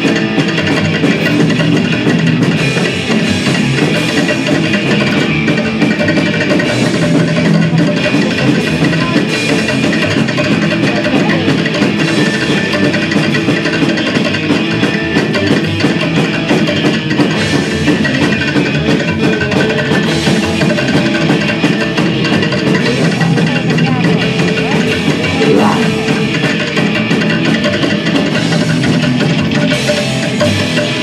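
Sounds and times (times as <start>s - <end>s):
live rock band playing: 0.0s - 31.0s.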